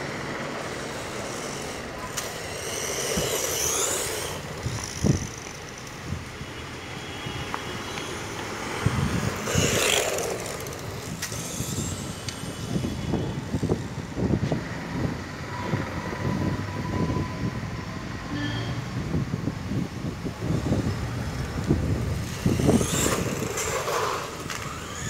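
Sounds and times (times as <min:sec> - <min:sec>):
tyre noise on asphalt: 0:00.0 - 0:17.3, 0:19.4 - 0:25.0
rc car motor whine: 0:00.0 - 0:17.4, 0:20.3 - 0:25.0.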